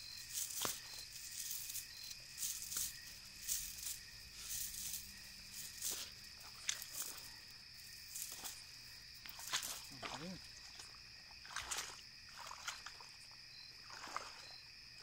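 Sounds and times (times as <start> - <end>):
net rustling: 0.0 - 8.7
night insects trilling: 0.0 - 15.0.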